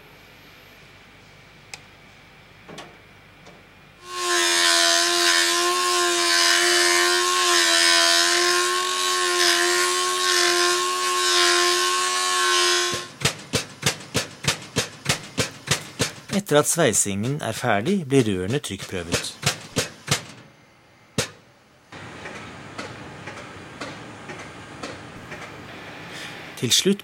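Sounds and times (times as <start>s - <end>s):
angle grinder grinding steel: 4.0s - 13.2s
fast regular knocking: 13.0s - 16.5s, 17.1s - 20.4s.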